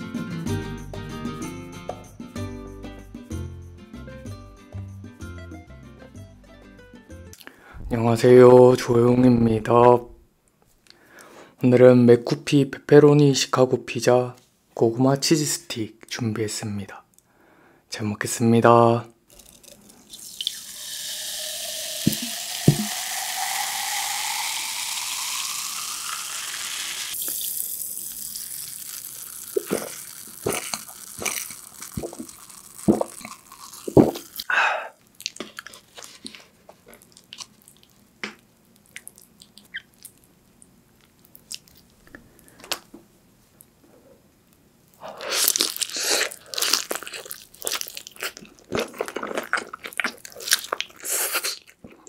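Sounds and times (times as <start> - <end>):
soda pouring and fizzing: 19.3 - 34.5.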